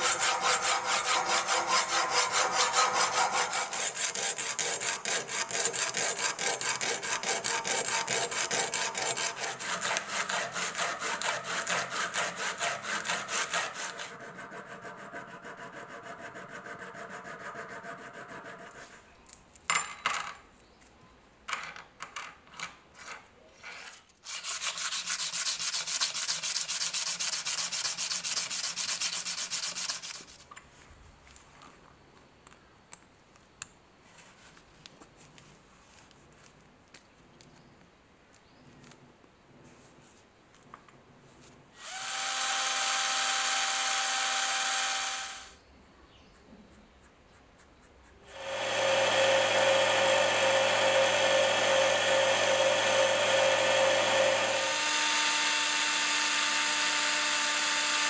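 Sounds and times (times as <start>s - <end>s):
hacksaw cutting brass tube: 0.0s - 18.9s, 41.8s - 45.6s, 48.3s - 58.0s
hand file on metal: 0.0s - 19.0s, 23.7s - 30.4s.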